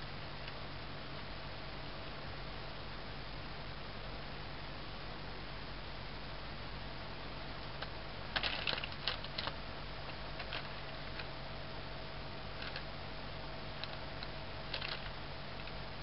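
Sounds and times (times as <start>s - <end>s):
steady background hiss: 0.0s - 16.0s
plastic bag crinkling: 8.3s - 9.6s, 10.4s - 11.2s, 12.6s - 12.8s, 14.7s - 15.7s.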